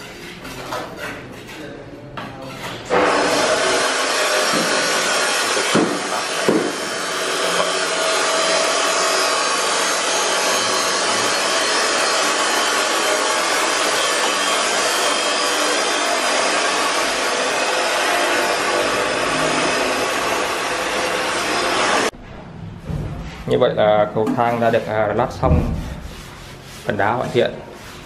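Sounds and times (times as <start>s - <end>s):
electric grinder grinding stone: 3.0s - 22.1s.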